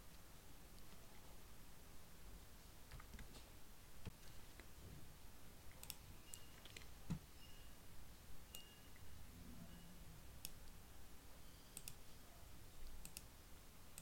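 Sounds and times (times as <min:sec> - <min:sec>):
computer mouse clicks: 0:05.7 - 0:07.0, 0:10.4 - 0:10.8, 0:11.7 - 0:12.1, 0:12.8 - 0:13.3.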